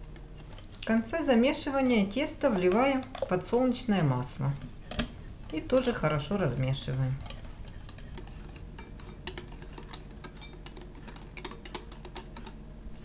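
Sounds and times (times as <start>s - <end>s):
whisk clinking against glass bowl: 7.8s - 12.5s.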